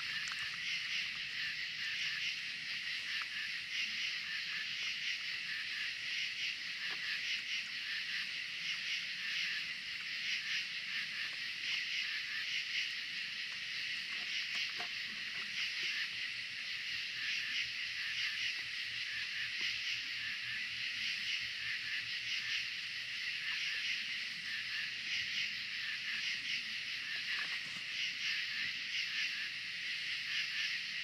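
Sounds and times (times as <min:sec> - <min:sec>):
night insects buzzing: 0:00.0 - 0:31.0.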